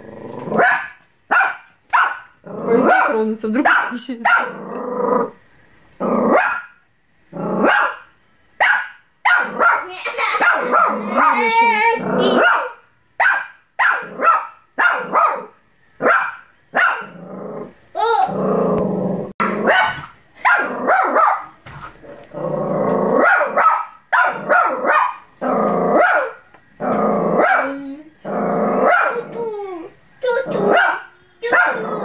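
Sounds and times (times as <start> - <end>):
dog growling barks: 0.0 - 5.4, 6.0 - 29.5, 30.3 - 32.0
dog barking: 0.6 - 4.6, 6.3 - 6.8, 7.6 - 11.4, 12.2 - 17.2, 19.4 - 21.6, 23.2 - 25.3, 25.9 - 26.4, 27.4 - 27.7, 28.8 - 29.3, 30.5 - 32.0.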